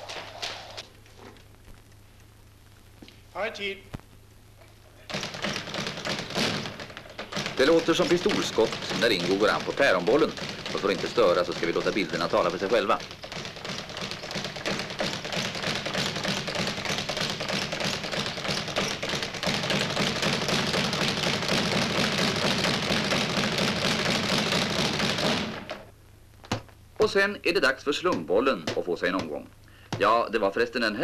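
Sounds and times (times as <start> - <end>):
speed bag rattling: 5.0 - 25.9.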